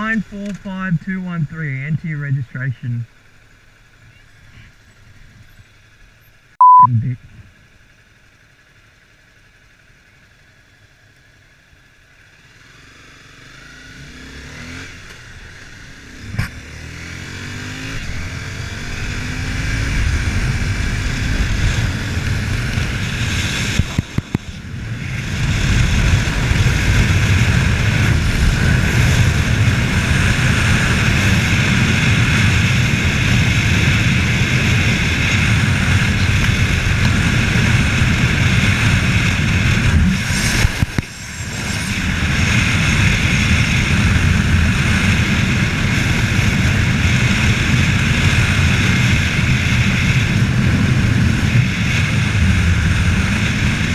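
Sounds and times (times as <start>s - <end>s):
motorcycle engine accelerating: 3.1s - 53.9s
wind rush: 19.6s - 53.9s.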